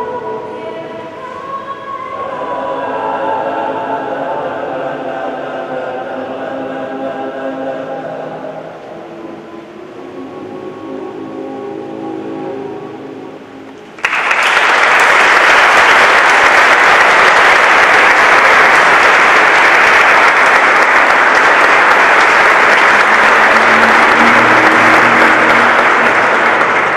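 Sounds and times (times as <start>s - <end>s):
male choir singing: 0.0s - 12.5s, 19.6s - 26.9s
audience applause: 13.9s - 26.9s.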